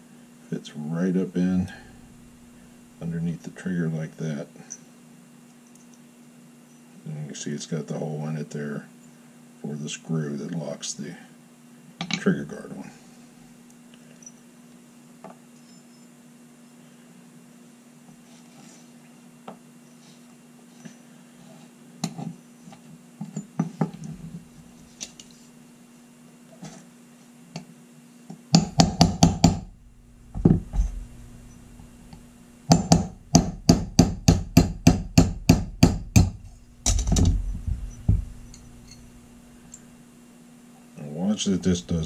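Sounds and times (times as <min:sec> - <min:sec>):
hammer tapping punch on metal: 0:28.5 - 0:29.7, 0:32.7 - 0:39.0.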